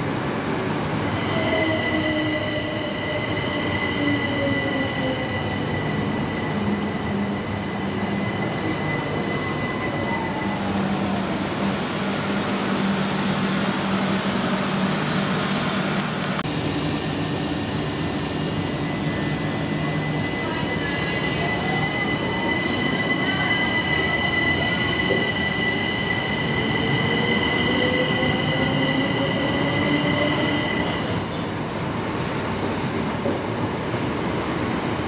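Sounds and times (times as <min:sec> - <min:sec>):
train wheels on rails: 0:17.1 - 0:35.0.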